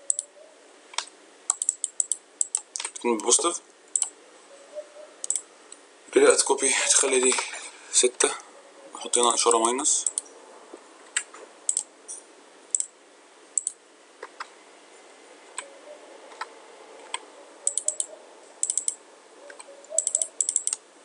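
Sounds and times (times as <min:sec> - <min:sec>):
computer mouse clicks: 0:00.0 - 0:00.3, 0:01.0 - 0:04.2, 0:05.2 - 0:05.4, 0:09.5 - 0:10.3, 0:11.1 - 0:11.9, 0:12.7 - 0:12.9, 0:13.6 - 0:14.5, 0:16.3 - 0:20.8
keyboard keystrokes: 0:01.0 - 0:03.0, 0:17.1 - 0:19.0, 0:20.0 - 0:20.8.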